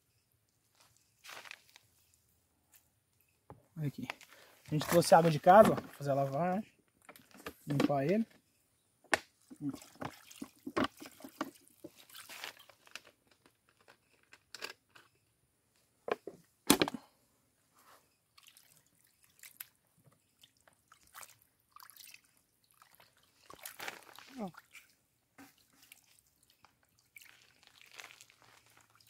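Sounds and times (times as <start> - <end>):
water splashing into plastic bowl: 9.5 - 12.7
hands washing fish in water: 9.5 - 13.0, 18.3 - 29.0.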